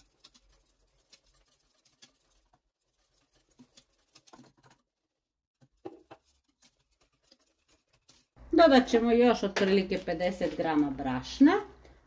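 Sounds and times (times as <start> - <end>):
whisk scraping metal pot: 0.0 - 4.8, 5.8 - 8.4.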